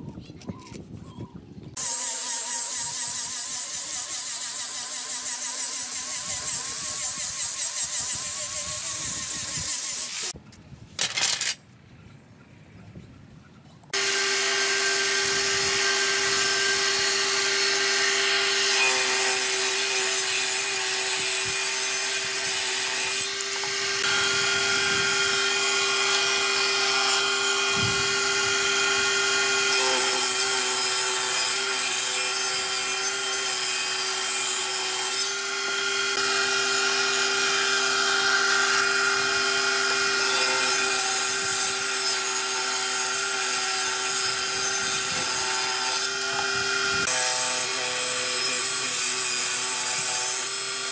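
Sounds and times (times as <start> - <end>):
table saw cutting wood: 1.8 - 10.4, 14.0 - 50.9.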